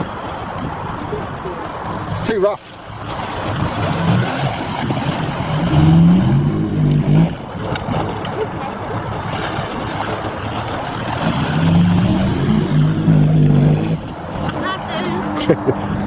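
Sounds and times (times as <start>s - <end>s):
car engine revving: 5.3s - 8.1s, 11.2s - 14.6s.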